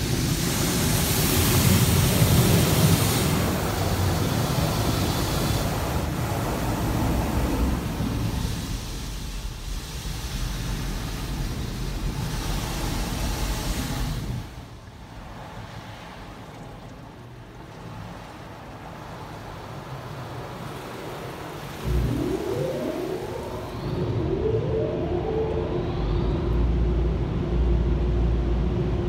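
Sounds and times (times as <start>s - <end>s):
steady low rumble: 21.8s - 29.0s.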